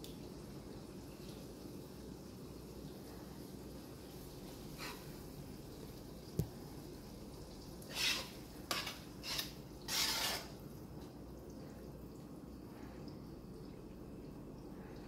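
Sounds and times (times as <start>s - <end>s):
metal spoon scraping a frying pan: 4.8s - 5.2s, 7.9s - 10.6s.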